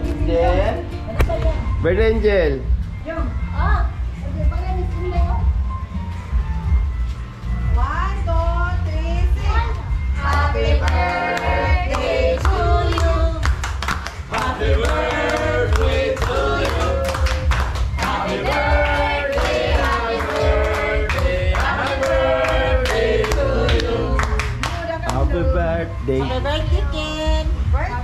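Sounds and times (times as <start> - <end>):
several voices singing: 10.1 - 24.6.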